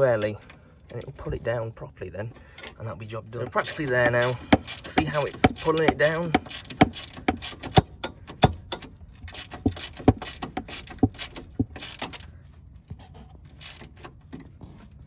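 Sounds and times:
socket ratchet clicking: 3.6s - 7.9s, 9.3s - 12.2s, 13.6s - 13.9s.

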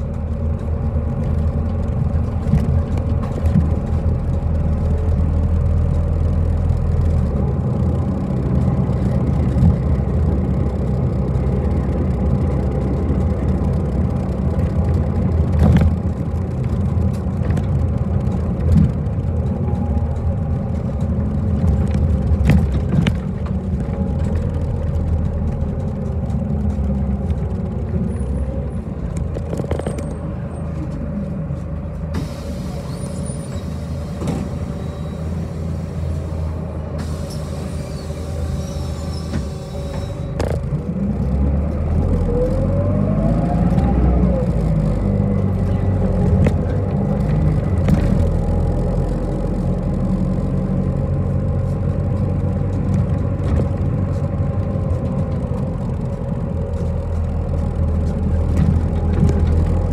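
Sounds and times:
bus engine low rumble: 0.0s - 59.9s.

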